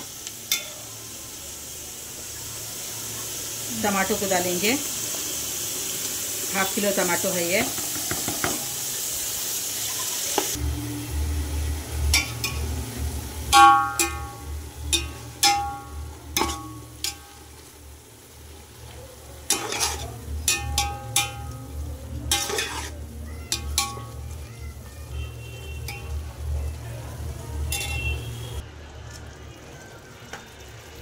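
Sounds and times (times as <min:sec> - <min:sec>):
tomatoes sizzling in oil: 0:00.0 - 0:31.0
metal spoon scraping metal pot: 0:19.5 - 0:21.6, 0:22.2 - 0:24.0.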